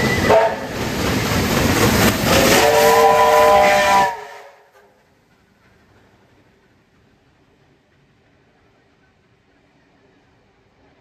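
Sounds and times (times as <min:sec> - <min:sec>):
steam locomotive whistle chord: 0:00.0 - 0:00.8, 0:02.3 - 0:04.7
steam hissing: 0:00.0 - 0:11.0.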